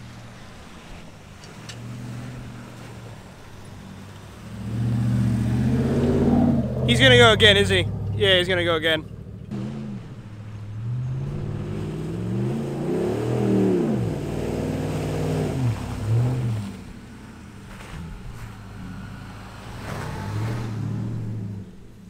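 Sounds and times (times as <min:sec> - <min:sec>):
truck engine revving: 0:00.0 - 0:22.0.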